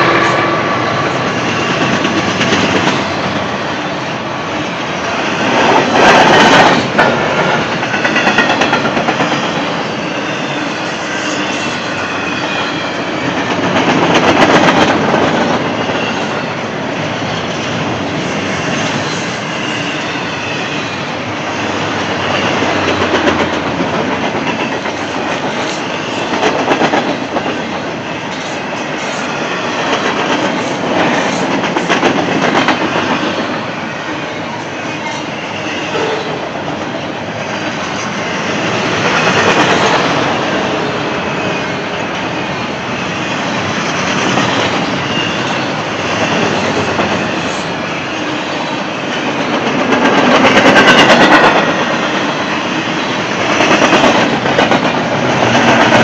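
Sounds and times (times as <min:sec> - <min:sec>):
train wheels rumbling on rail: 0:00.0 - 0:56.0
clickety-clack over rail joints: 0:00.1 - 0:03.4, 0:05.4 - 0:09.8, 0:13.2 - 0:16.4, 0:21.8 - 0:33.6, 0:37.6 - 0:41.0, 0:43.6 - 0:47.7, 0:49.1 - 0:56.0.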